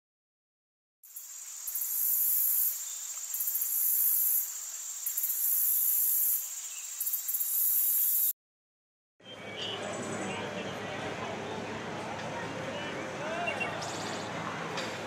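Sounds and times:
crickets trilling: 0:01.0 - 0:08.3
insect chorus: 0:01.0 - 0:08.3.

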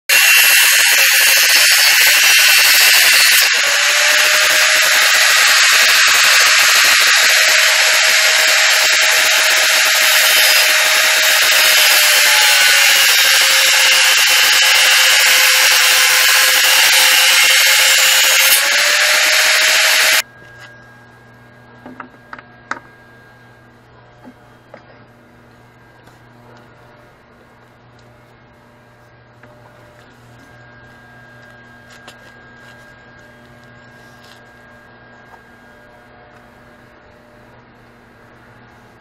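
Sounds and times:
angle grinder grinding metal: 0:00.1 - 0:20.8.

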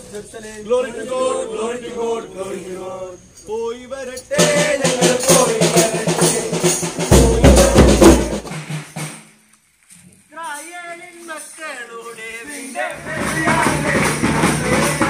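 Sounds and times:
group singing a carol: 0:00.0 - 0:08.5, 0:12.0 - 0:15.0
drums and percussion beat: 0:04.3 - 0:09.4, 0:12.5 - 0:15.0
heavy low drumbeat: 0:04.4 - 0:09.1, 0:13.0 - 0:15.0.

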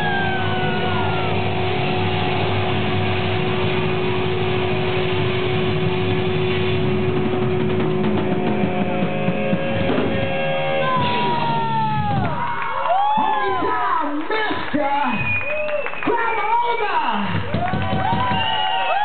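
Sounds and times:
live rock band playing: 0:00.0 - 0:12.6
loud drum hits: 0:00.0 - 0:12.7, 0:17.3 - 0:18.6.

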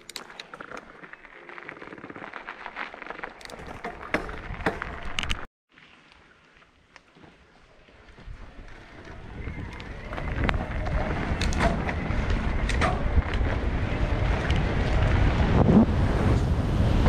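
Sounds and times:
bike rattling over bumps: 0:00.0 - 0:05.5, 0:08.1 - 0:17.0
bike tyres on dirt trail: 0:00.0 - 0:17.0
wind over microphone: 0:08.1 - 0:17.0.

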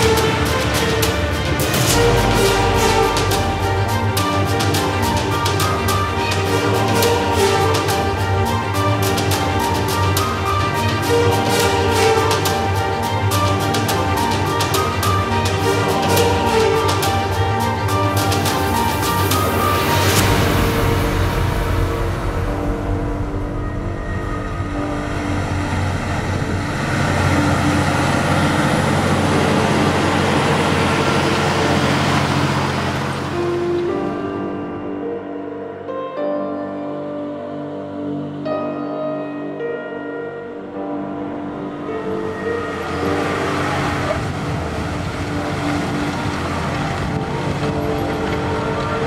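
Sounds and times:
tractor engine drone: 0:00.0 - 0:34.2, 0:41.9 - 0:49.0
background music chords: 0:00.0 - 0:49.0
tractor engine under load: 0:25.1 - 0:33.7, 0:42.8 - 0:49.0.

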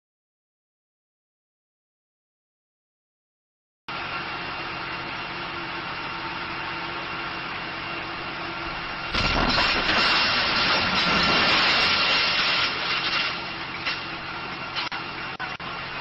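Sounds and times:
explosion blast: 0:09.1 - 0:13.1.

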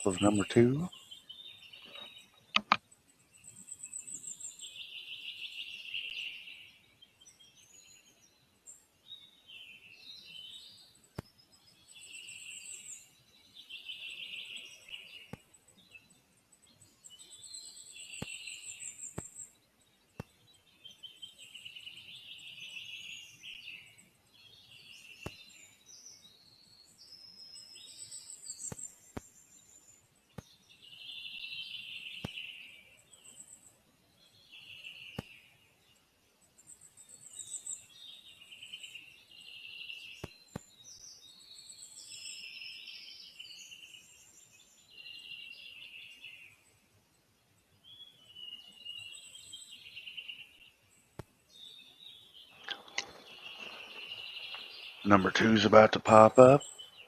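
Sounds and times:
songbirds singing: 0:00.0 - 0:57.0
sharp clicks: 0:01.9 - 0:02.8, 0:52.6 - 0:53.8.

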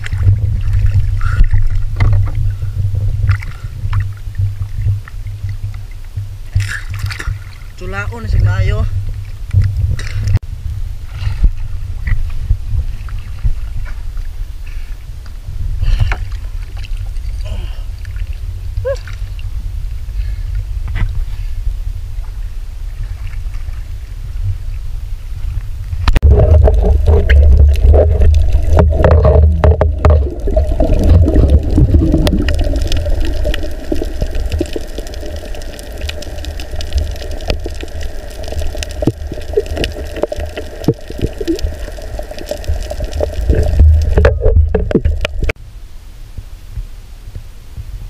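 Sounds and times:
underwater clicks and knocks: 0:00.0 - 0:07.6, 0:09.0 - 0:10.4, 0:26.0 - 0:45.6
muffled underwater rushing: 0:00.0 - 0:45.6.

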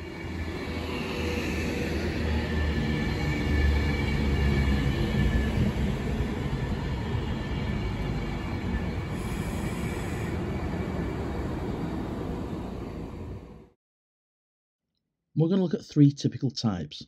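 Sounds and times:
train wheels rumbling on rails: 0:00.0 - 0:13.4.

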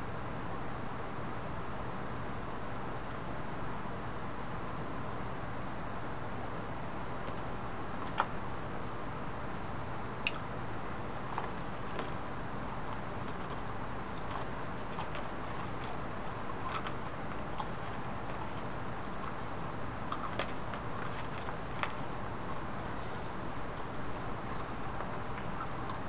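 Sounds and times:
steady hiss: 0:22.2 - 0:25.8.

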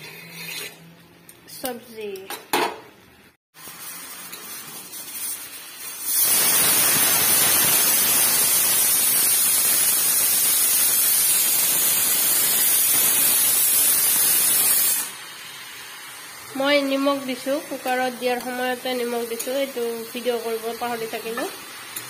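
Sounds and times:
pressure cooker whistle hissing: 0:06.0 - 0:15.3.

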